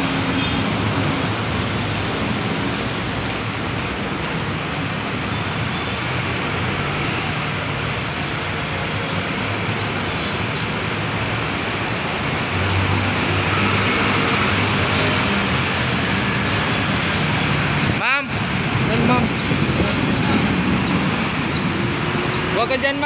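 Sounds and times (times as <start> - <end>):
street traffic roar: 0.0 - 23.0.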